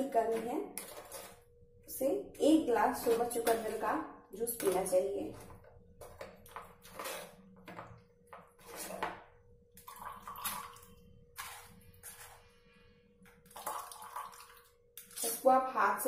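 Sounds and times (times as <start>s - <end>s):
spoon scraping wet pulp in strainer: 0.2s - 1.4s, 2.9s - 9.1s, 11.4s - 12.6s
juice dripping into mug: 9.8s - 12.0s, 13.3s - 15.3s.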